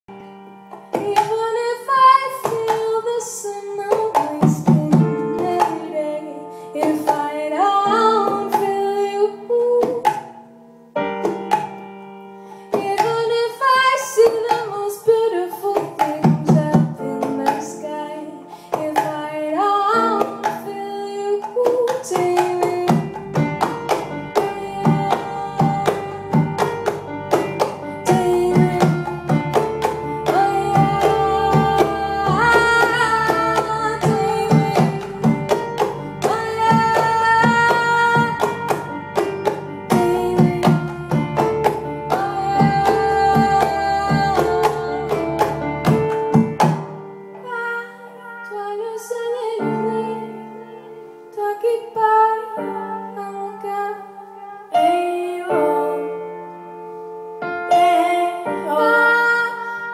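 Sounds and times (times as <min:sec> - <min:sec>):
keyboard chords: 0:00.1 - 0:59.9
woman singing: 0:00.9 - 0:10.3, 0:12.7 - 0:46.6, 0:47.4 - 0:56.4, 0:57.6 - 0:59.9
hand drums: 0:21.5 - 0:47.0.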